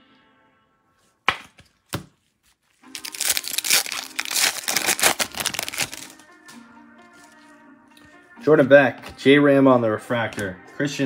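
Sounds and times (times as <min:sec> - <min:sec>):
foil wrapper tearing and crinkling: 0:02.8 - 0:06.2.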